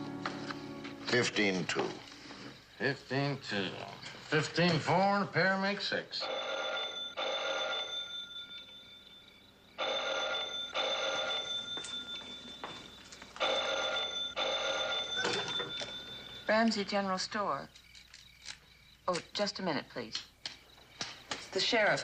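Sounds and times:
telephone bell ringing: 6.2s - 17.2s.

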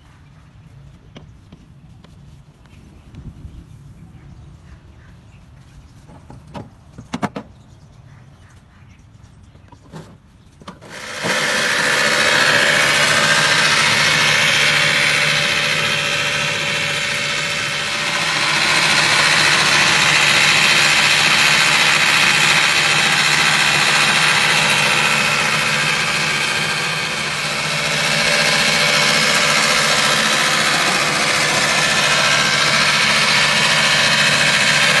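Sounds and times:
electric lawn mower whirring: 10.6s - 35.0s.

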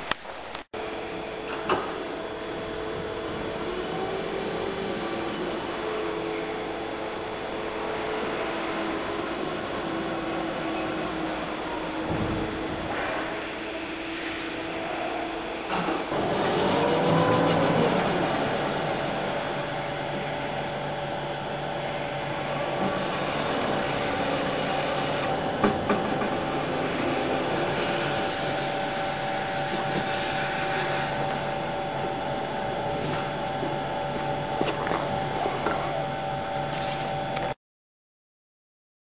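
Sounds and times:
door whirring and rubbing: 15.6s - 32.1s
sliding door drive humming: 15.6s - 33.8s.

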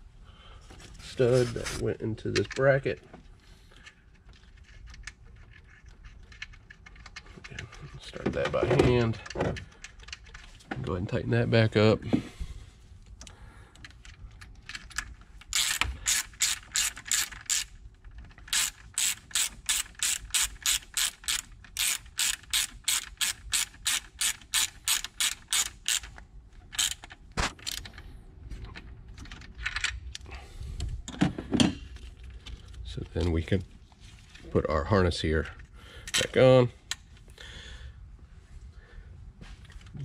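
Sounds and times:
socket ratchet clicking: 14.8s - 27.8s.

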